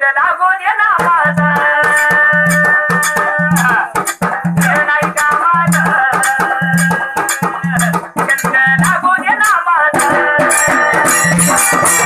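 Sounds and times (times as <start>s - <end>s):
dhol drum beating: 0.9s - 12.0s
high wavering melody: 10.4s - 12.0s.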